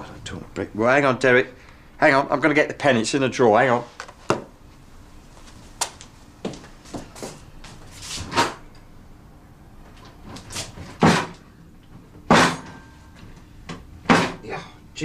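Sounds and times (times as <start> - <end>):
footsteps: 5.3 - 8.0
kitchen drawer banging: 10.9 - 11.4, 14.1 - 14.4.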